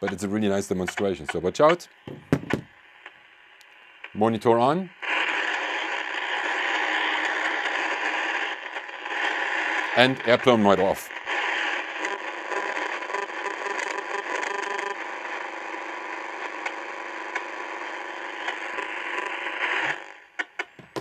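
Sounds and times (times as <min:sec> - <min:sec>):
clicks: 0:00.0 - 0:04.2
radio hiss and crackle: 0:00.0 - 0:21.0.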